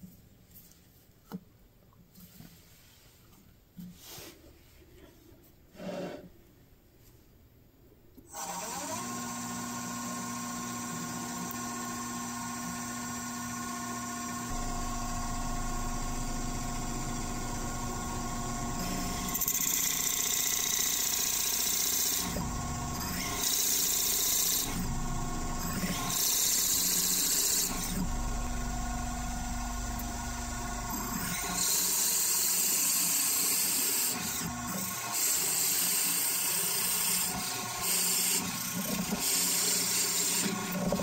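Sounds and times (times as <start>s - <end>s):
drill bit boring into wood: 8.3s - 41.0s
drill press motor running: 8.3s - 41.0s.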